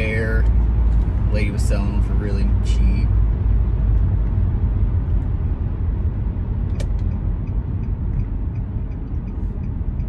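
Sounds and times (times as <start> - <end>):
car cabin road rumble: 0.0 - 10.0
sharp click: 6.7 - 10.0
faint regular ticking: 7.0 - 10.0.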